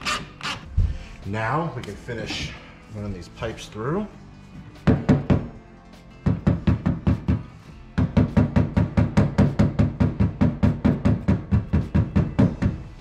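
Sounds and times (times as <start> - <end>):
faint background music: 0.0 - 13.0
mallet knocking on pipes: 8.0 - 12.8.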